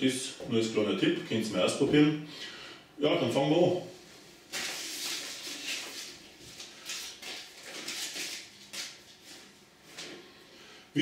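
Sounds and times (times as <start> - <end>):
foil wrapper crinkling: 4.5 - 9.4.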